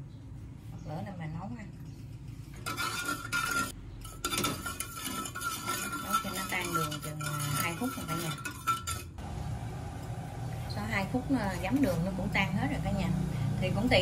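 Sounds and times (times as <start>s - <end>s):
metal spoon scraping a pot: 1.7s - 9.2s.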